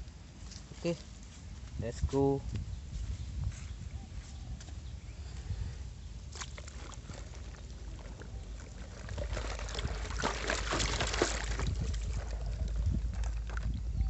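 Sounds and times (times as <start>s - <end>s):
water sloshing and bubbling: 6.2s - 14.0s.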